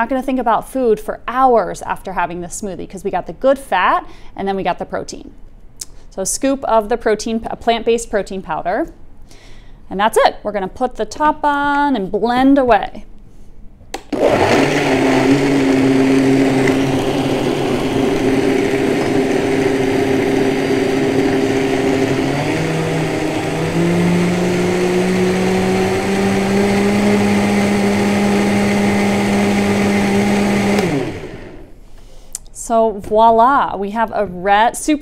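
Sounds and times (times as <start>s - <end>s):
blender running: 14.0s - 31.8s.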